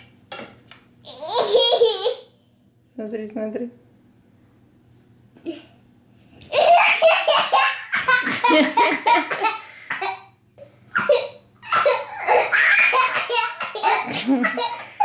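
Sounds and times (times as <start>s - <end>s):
child laughing hard: 1.1s - 2.2s, 6.5s - 9.6s, 11.0s - 15.0s.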